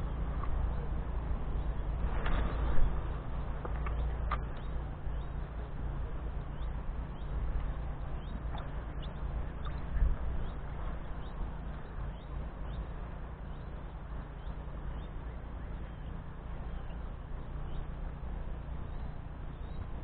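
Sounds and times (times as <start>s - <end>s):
wind buffeting microphone: 0.0s - 20.0s
faint bird chirps: 6.3s - 20.0s.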